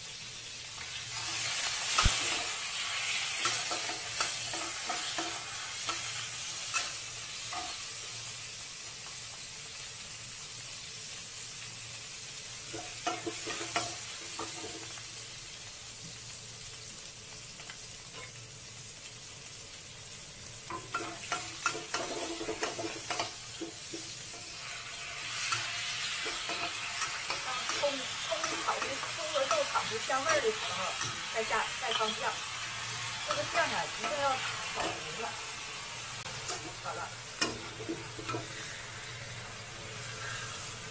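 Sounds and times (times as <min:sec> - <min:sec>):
pork sizzling in oil: 0:00.0 - 0:40.9
metal spatula scraping a wok: 0:01.1 - 0:07.8, 0:20.7 - 0:35.3, 0:36.2 - 0:40.9.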